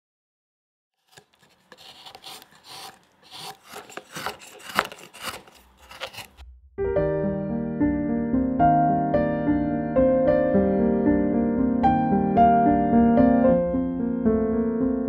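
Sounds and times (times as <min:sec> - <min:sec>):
gouge scraping wood: 0:01.0 - 0:06.4.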